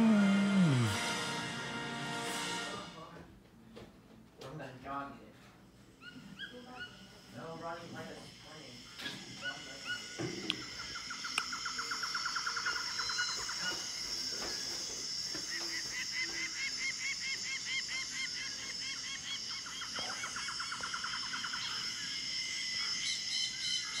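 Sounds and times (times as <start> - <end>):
insects buzzing: 0.0 - 1.8, 6.9 - 24.0.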